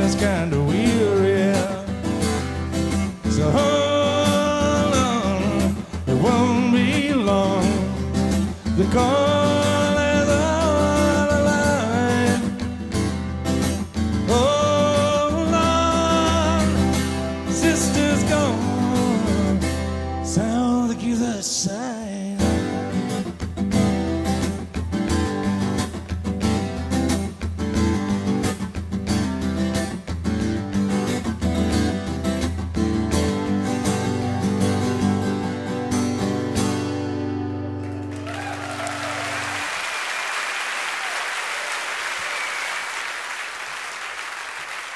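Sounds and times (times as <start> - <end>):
acoustic guitar strumming: 0.0 - 21.6, 22.4 - 39.6
audience applauding: 37.8 - 44.9.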